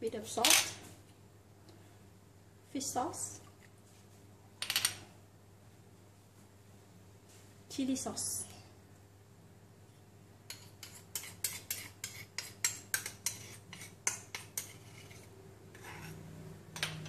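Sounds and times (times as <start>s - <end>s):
spoon stirring: 10.5s - 17.0s.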